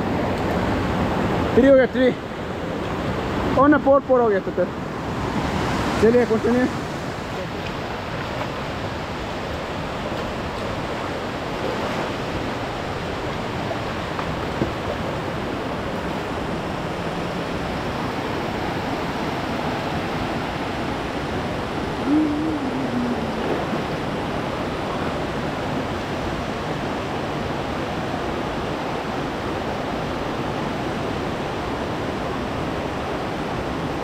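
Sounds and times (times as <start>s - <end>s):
flowing river water: 0.0s - 34.0s
wavering voice-like sound: 22.0s - 23.7s.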